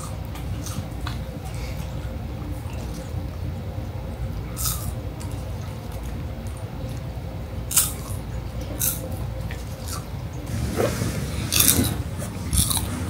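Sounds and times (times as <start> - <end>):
crunchy food being chewed: 0.0 - 3.3, 4.5 - 7.1, 7.7 - 10.1, 11.5 - 13.0.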